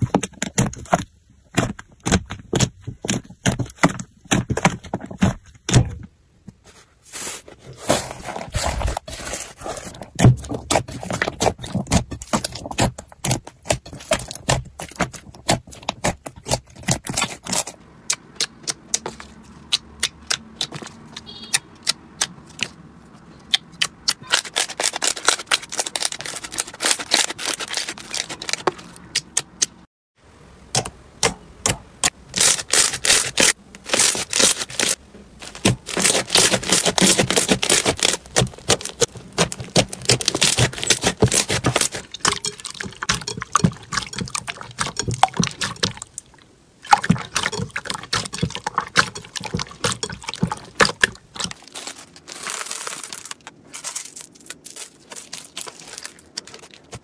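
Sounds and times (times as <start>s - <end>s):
slime crackling and popping: 23.5s - 29.6s, 32.3s - 46.3s, 46.9s - 57.0s.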